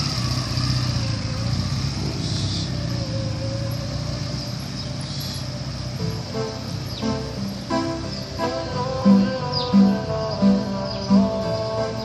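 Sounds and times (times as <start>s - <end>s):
motorcycle engine riding off: 0.0s - 12.0s.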